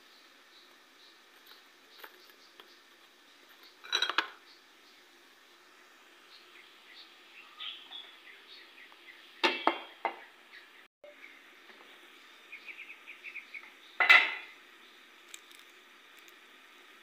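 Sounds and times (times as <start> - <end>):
metal cookware clanking: 3.8 - 4.4, 14.0 - 14.5.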